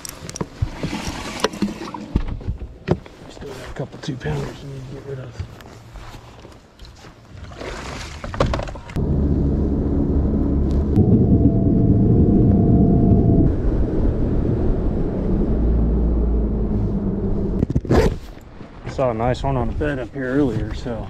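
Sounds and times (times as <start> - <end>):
boat motor droning: 9.0 - 17.6.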